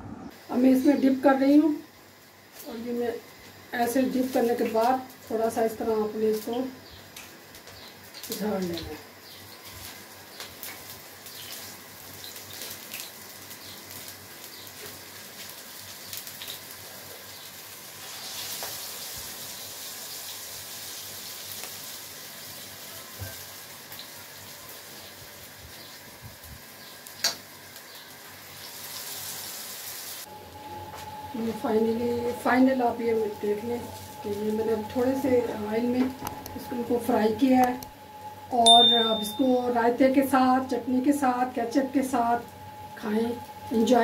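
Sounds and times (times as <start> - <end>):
cutlets sizzling in oil: 3.8 - 30.3.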